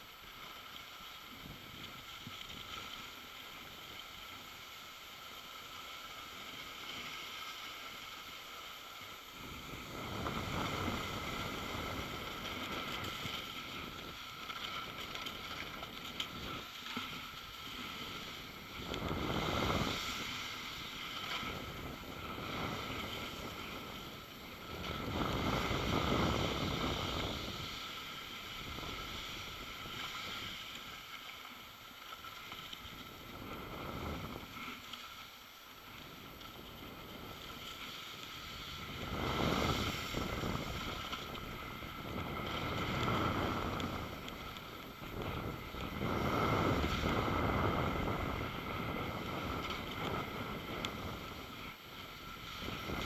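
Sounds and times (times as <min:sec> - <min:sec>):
skis sliding over snow: 0:00.0 - 0:53.0
wind rushing over microphone: 0:09.4 - 0:14.2, 0:17.9 - 0:30.6, 0:33.2 - 0:34.6, 0:38.3 - 0:51.7, 0:52.5 - 0:53.0.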